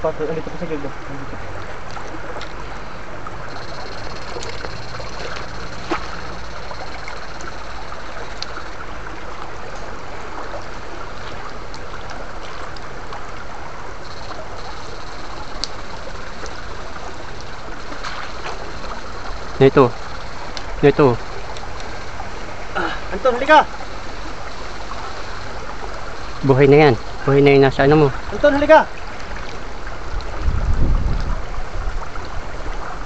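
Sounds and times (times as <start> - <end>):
stream water splashing: 0.0 - 33.0
thin high whine: 2.7 - 8.9, 13.9 - 22.2.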